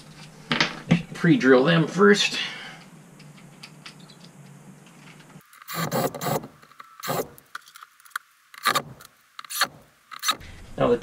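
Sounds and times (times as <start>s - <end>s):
cordless drill drilling: 5.7s - 7.4s.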